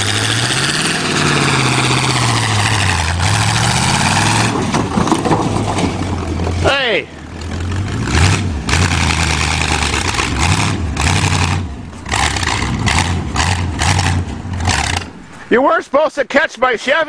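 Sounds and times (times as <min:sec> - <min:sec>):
car engine revving hard: 0:00.0 - 0:04.7, 0:07.4 - 0:15.1.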